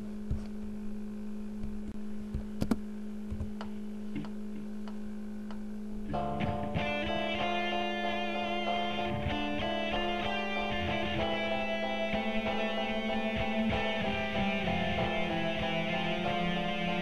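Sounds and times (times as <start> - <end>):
steady low held tone: 3.8 - 17.0
plucked guitar music: 6.0 - 17.0.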